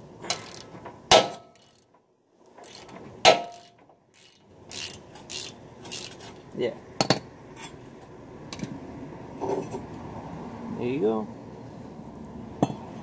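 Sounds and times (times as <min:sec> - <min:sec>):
ratchet clicking: 0:00.3 - 0:00.8, 0:01.5 - 0:01.9, 0:02.6 - 0:06.4.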